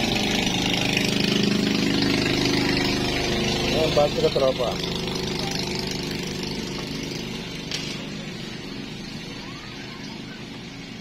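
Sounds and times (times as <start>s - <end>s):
engine-like drone: 0.0s - 11.0s.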